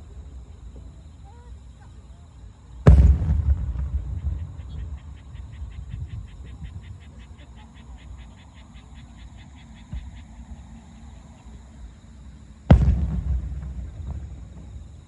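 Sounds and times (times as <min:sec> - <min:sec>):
firework boom: 0:02.8 - 0:05.0, 0:12.7 - 0:15.0.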